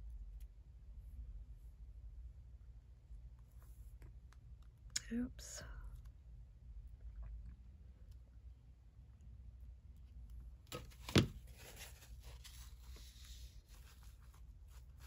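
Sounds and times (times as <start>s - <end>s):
tissue crinkling and rubbing: 10.9s - 15.0s.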